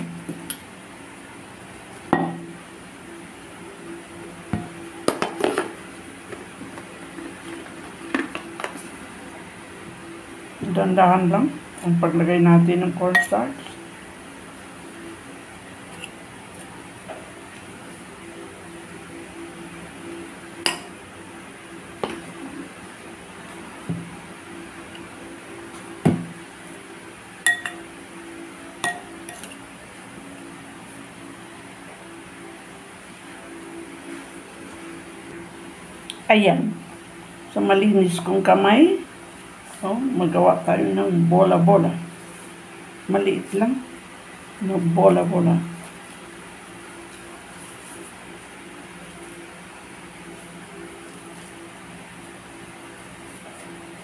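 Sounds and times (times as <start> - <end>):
metal spoon clinking on dishes: 27.5 - 27.8, 28.8 - 29.6.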